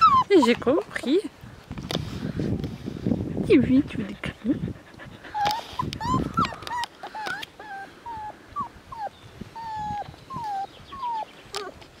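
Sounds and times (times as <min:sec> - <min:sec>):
puppy whimpering: 0:00.0 - 0:00.8, 0:04.4 - 0:11.8.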